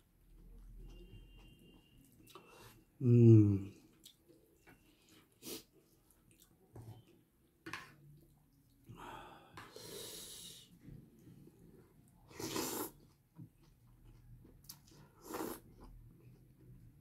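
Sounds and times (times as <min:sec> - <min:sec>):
noodles being slurped: 0:12.2 - 0:13.2, 0:14.7 - 0:16.0.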